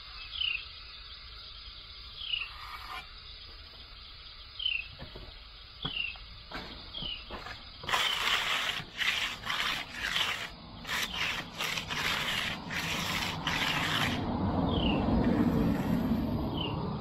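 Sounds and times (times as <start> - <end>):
bird chirping: 0.0 - 8.2, 14.6 - 15.9, 16.5 - 16.9
tool scraping wet concrete: 2.5 - 3.1, 7.3 - 16.2.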